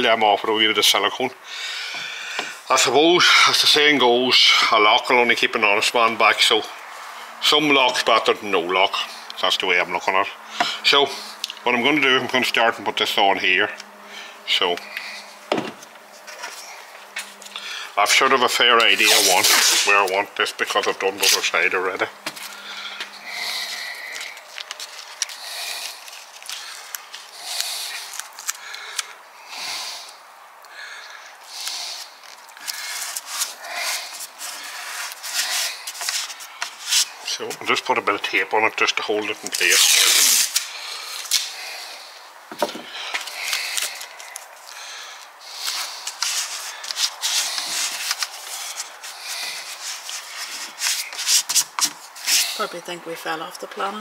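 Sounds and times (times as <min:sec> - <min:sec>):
paper rustling against tape: 0:14.8 - 0:29.2, 0:31.6 - 0:37.6, 0:39.2 - 0:41.9, 0:43.0 - 0:52.8
fingers rubbing tape: 0:18.8 - 0:20.2, 0:31.6 - 0:37.2, 0:39.4 - 0:41.6, 0:45.5 - 0:52.7
tape tearing off roll: 0:18.8 - 0:20.2, 0:39.4 - 0:41.6, 0:45.5 - 0:52.6.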